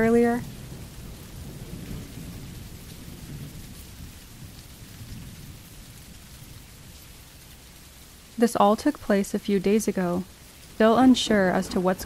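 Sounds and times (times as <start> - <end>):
rolling thunder rumble: 0.0 - 7.4
rain patter: 0.0 - 12.0.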